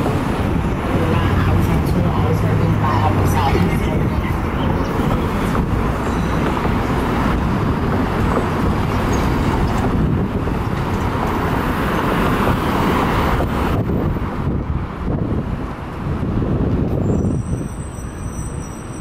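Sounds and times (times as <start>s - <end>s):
road traffic noise: 0.0s - 19.0s
wind buffeting microphone: 0.0s - 19.0s.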